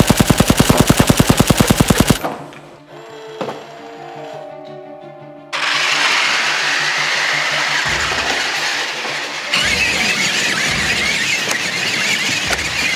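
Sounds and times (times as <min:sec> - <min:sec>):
toy tank motors whining: 0:00.0 - 0:02.2, 0:05.6 - 0:12.9.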